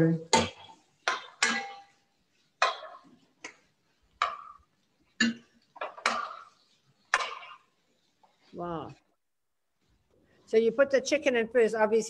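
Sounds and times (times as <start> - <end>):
metal spoon clinking on pot: 0.4 - 3.1.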